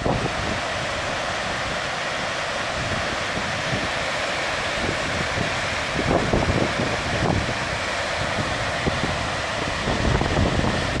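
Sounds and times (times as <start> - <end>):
wind buffeting microphone: 0.0 - 1.9, 4.8 - 11.0
waterfall rushing: 0.0 - 11.0.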